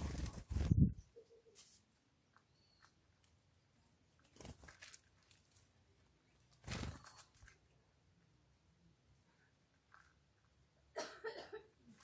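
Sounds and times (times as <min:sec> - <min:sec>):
small birds' wings fluttering: 0:00.0 - 0:07.7.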